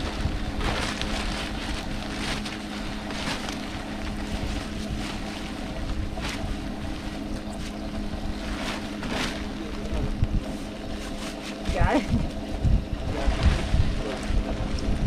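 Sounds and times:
boat motor humming: 0.0s - 15.0s
wind buffeting microphone: 0.0s - 15.0s
short rustles: 0.6s - 7.8s.

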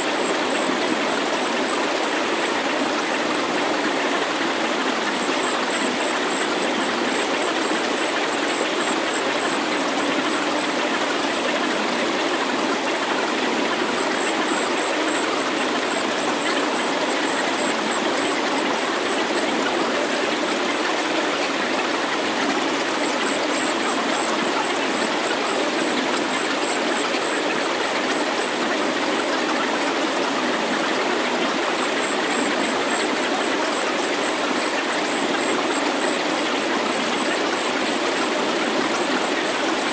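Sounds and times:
synthesized rushing hiss: 0.0s - 7.0s
faint high pulsing tone: 0.0s - 7.8s.

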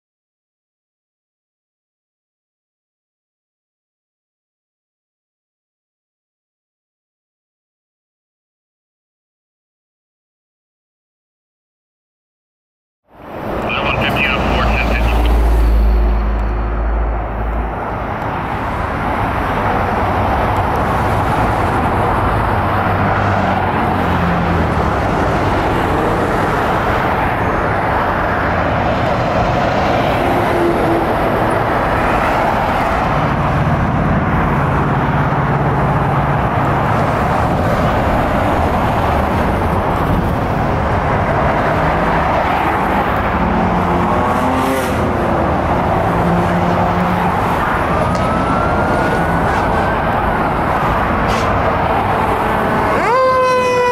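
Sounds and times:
highway traffic: 13.0s - 53.9s
siren wailing: 13.6s - 17.0s, 46.9s - 51.2s, 51.9s - 53.9s.

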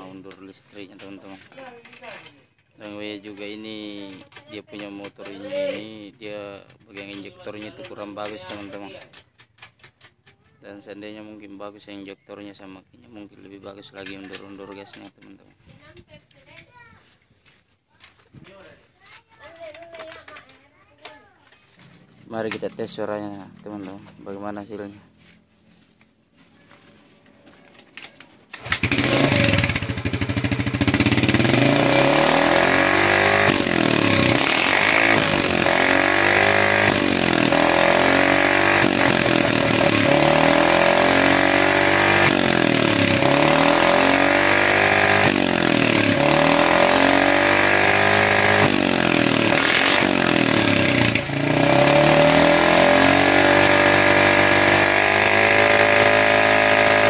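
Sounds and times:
scooter engine revving: 27.5s - 57.0s.

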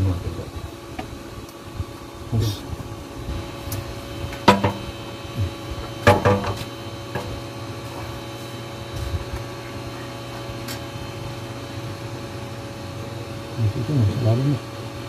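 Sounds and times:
steady background hum: 0.0s - 15.0s
knocks and clatters: 4.4s - 4.8s, 6.0s - 7.3s.

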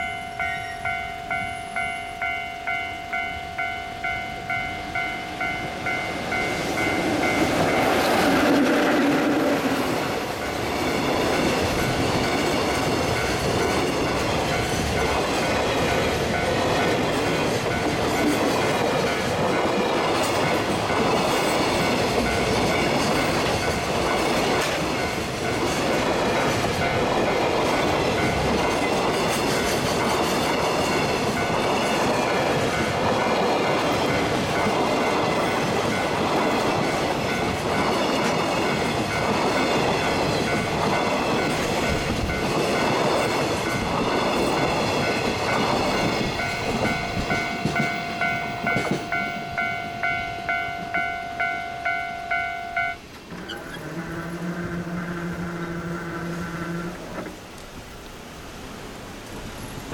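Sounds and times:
level crossing bell ringing: 0.0s - 8.0s, 45.1s - 53.1s
freight train rumbling past: 0.0s - 59.9s
wheels clacking over rail joints: 4.0s - 57.7s.

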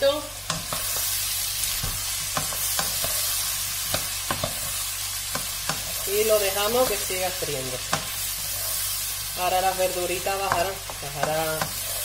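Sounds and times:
vegetables sizzling in a pan: 0.0s - 12.0s
wooden spatula knocking on pan: 10.4s - 11.8s.

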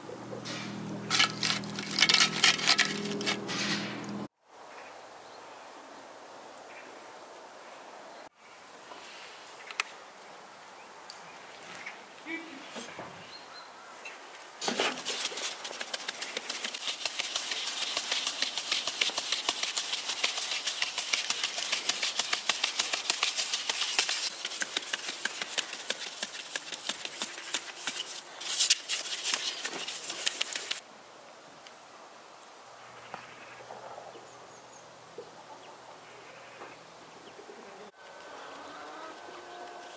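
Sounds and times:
sieve rattling with flour: 1.1s - 3.4s, 14.6s - 30.8s.

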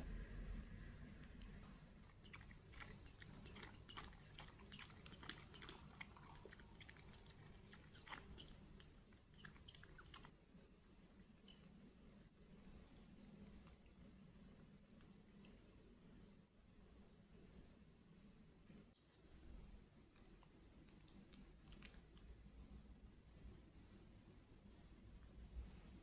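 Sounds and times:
baby monkey sucking from bottle: 1.2s - 10.3s.

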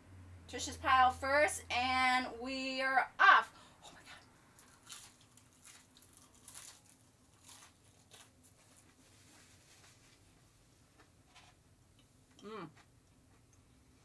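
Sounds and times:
chewing: 4.1s - 8.8s
chicken nuggets crunching: 4.6s - 8.9s.

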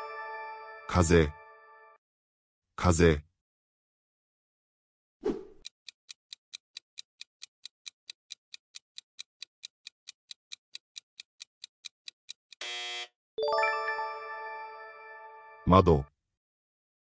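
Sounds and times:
clock ticking timer: 5.6s - 12.7s.

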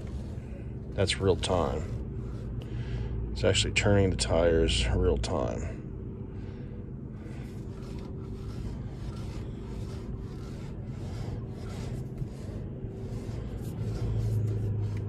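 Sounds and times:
rough rubbing and scraping: 0.0s - 2.8s, 7.2s - 15.0s
steady low hum: 0.0s - 15.0s.

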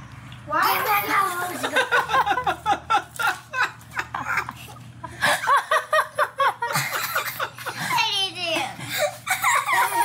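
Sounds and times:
high-pitched laughter: 8.8s - 10.0s.

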